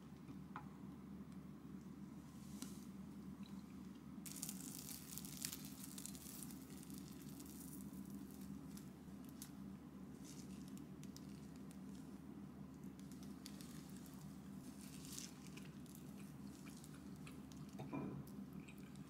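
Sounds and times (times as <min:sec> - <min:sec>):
low steady hum: 0:00.0 - 0:19.0
plastic gloves crinkling: 0:04.3 - 0:12.2, 0:12.8 - 0:17.7
toast crust crackling: 0:04.3 - 0:12.2, 0:12.8 - 0:17.8.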